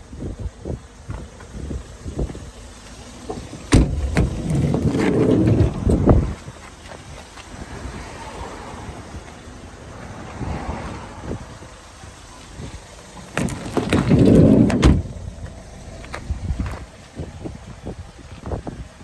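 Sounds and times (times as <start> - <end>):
sliding door rolling shut: 3.2 - 6.4, 13.3 - 15.2.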